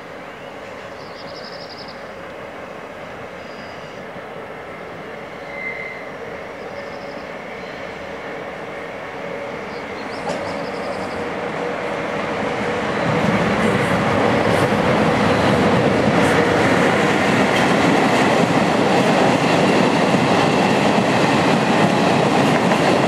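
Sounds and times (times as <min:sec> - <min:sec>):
electric locomotive hauling train: 0:00.0 - 0:23.0
high-pitched wheel squeals: 0:05.4 - 0:06.1.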